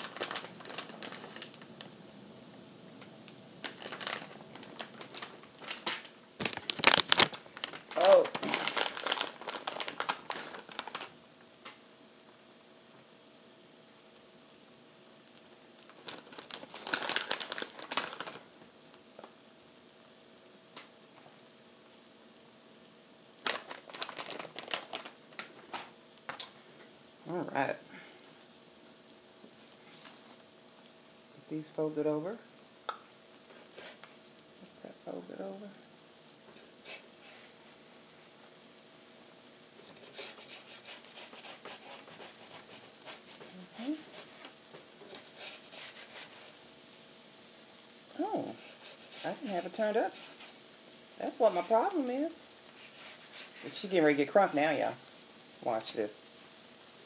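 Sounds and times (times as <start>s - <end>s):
plastic pouch crinkling: 0.0s - 1.9s, 3.0s - 11.2s, 15.9s - 18.5s, 23.4s - 26.5s
frying crackles: 0.0s - 57.0s
tacos sizzling on hot plate: 0.0s - 57.0s.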